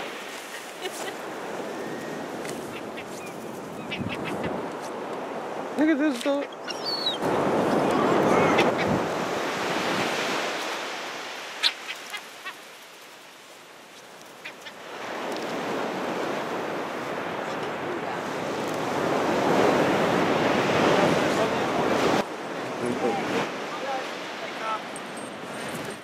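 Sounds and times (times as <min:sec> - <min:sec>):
surf breaking on beach: 0:00.0 - 0:03.0, 0:07.2 - 0:26.0
seagull calls: 0:01.7 - 0:04.7, 0:06.2 - 0:07.2, 0:08.0 - 0:09.0, 0:11.6 - 0:12.7, 0:14.4 - 0:14.9.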